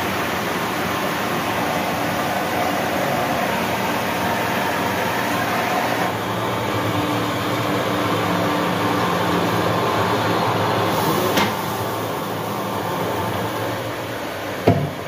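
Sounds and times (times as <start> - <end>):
knocks: 14.6 - 15.0.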